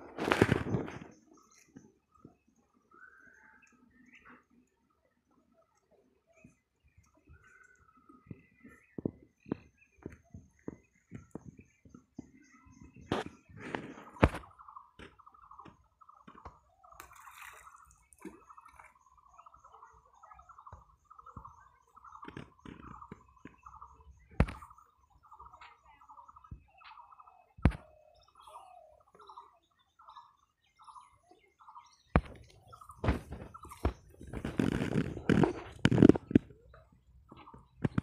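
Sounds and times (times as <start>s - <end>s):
faint high chirps: 1.2s - 38.0s
bird warbling calls: 11.6s - 38.0s.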